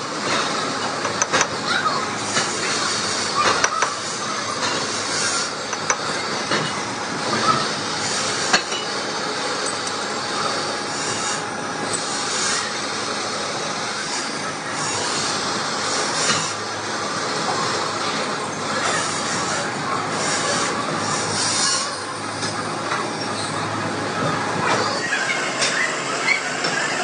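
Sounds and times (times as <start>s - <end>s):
metalworking machinery din: 0.0s - 27.0s.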